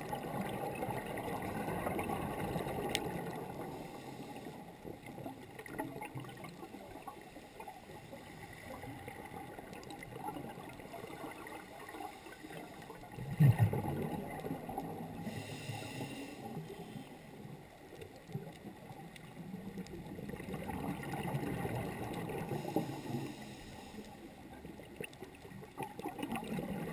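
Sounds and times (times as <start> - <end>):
exhaled bubbles gurgling: 0.0 - 26.9
water gurgle and rumble: 0.0 - 26.9
hissing inhalations: 15.2 - 17.2, 22.5 - 24.2.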